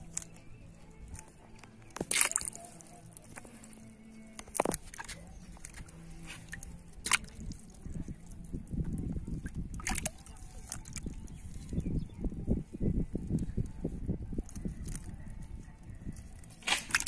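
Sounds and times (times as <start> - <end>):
water sloshing in bucket: 1.9 - 8.4, 9.2 - 11.8, 16.7 - 17.0
fish slapping into water: 2.0 - 2.6, 6.5 - 7.7, 9.7 - 11.0, 16.6 - 17.0.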